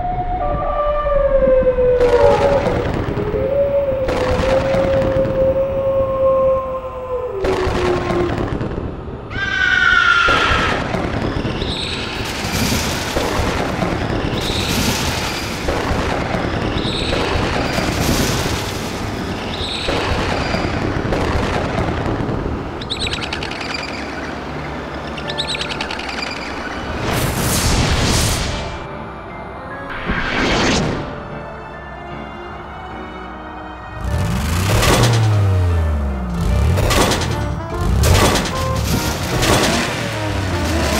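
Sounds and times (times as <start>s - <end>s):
spooky sound effects: 0.0s - 21.1s, 22.3s - 40.9s
cartoon wolf howl: 0.7s - 8.4s.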